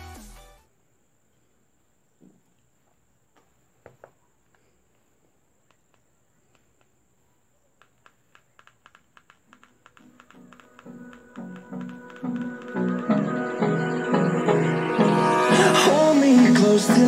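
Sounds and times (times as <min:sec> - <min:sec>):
phone keypad clicks: 0:07.8 - 0:13.1.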